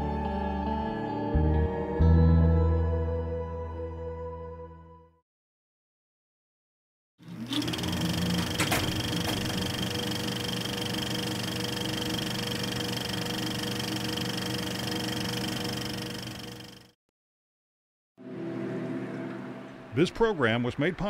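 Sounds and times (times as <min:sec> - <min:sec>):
small machine humming and whirring: 0:07.2 - 0:17.0.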